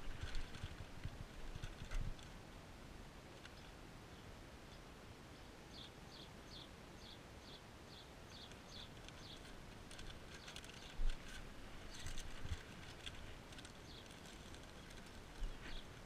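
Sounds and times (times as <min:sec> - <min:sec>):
small bird chirping: 0:05.7 - 0:16.0.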